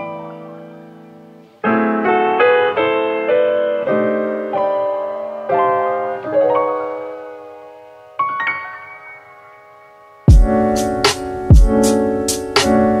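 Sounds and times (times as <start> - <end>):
slow piano melody: 0.0 - 13.0.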